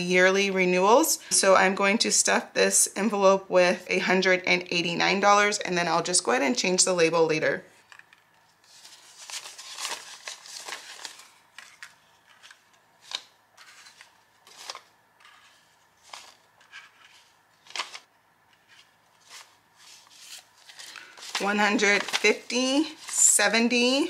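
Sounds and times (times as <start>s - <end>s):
paper bills rustling: 7.9s - 24.0s.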